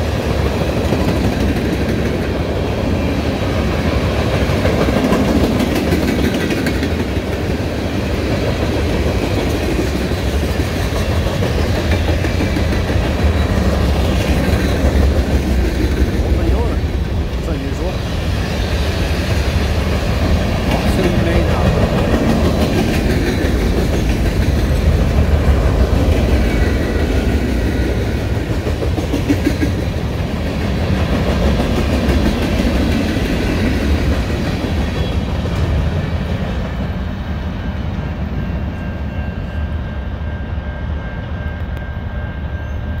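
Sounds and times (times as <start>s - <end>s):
train wheels rumbling on rail: 0.0s - 43.0s
wheels clacking over rail joints: 3.6s - 17.6s.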